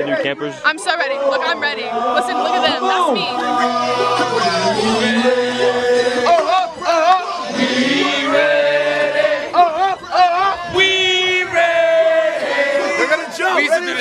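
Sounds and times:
sustained musical accompaniment: 0.7 - 10.0.

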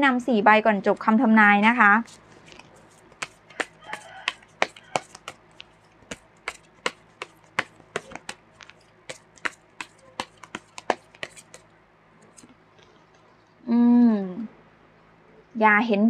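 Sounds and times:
cards being shuffled: 2.0 - 12.6.

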